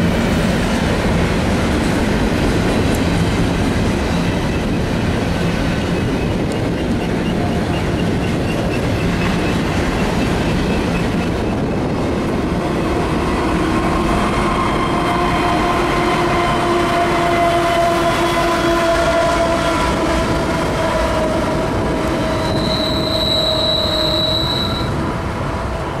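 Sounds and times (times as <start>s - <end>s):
diesel locomotives passing: 0.0s - 26.0s
train cars rumbling on rails: 0.0s - 26.0s
train wheels squealing: 5.6s - 11.8s, 22.0s - 25.0s.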